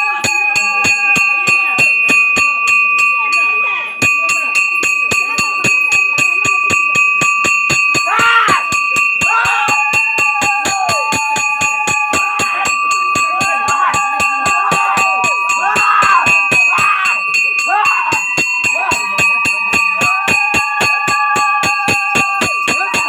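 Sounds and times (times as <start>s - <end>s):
bells ringing: 0.0s - 23.0s
fast percussion beat: 0.0s - 23.0s
voices shouting: 6.7s - 23.0s.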